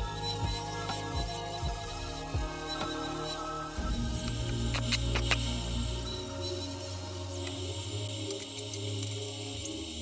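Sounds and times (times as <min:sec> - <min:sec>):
music with deep beat: 0:00.0 - 0:10.0.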